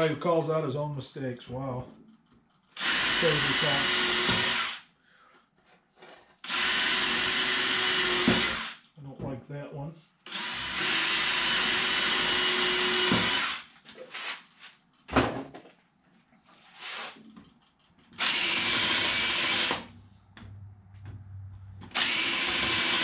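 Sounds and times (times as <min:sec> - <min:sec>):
cordless drill whine: 0:02.8 - 0:04.8, 0:06.4 - 0:08.8, 0:10.3 - 0:13.7, 0:18.2 - 0:19.9, 0:21.9 - 0:23.0.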